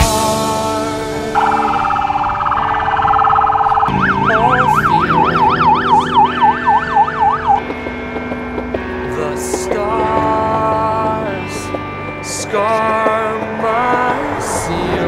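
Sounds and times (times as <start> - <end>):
background music: 0.0 - 15.0
motorcycle siren warbling: 1.4 - 8.3.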